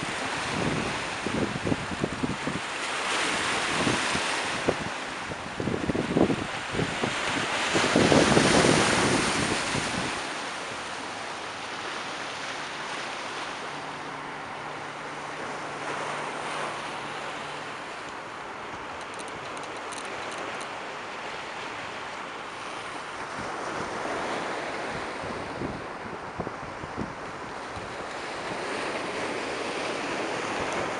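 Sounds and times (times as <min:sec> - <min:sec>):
wind buffeting microphone: 0:00.0 - 0:10.4, 0:23.2 - 0:30.9.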